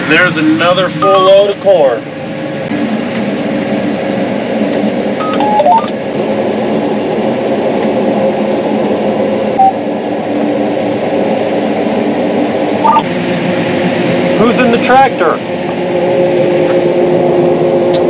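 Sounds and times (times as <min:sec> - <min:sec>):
combine harvester drone: 0:00.0 - 0:18.0
short electronic beeps: 0:05.2 - 0:05.9, 0:09.6 - 0:09.8, 0:12.8 - 0:13.0.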